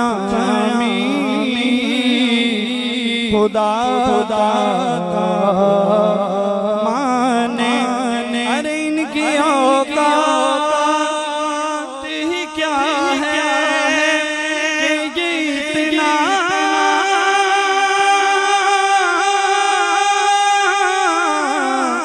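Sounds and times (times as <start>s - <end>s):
man singing solo: 0.0s - 22.0s.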